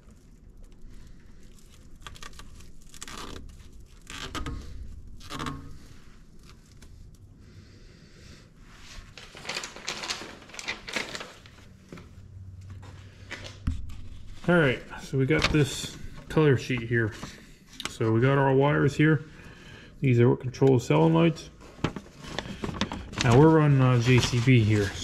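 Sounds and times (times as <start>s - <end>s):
hands handling wires: 9.0s - 18.4s, 20.6s - 25.0s.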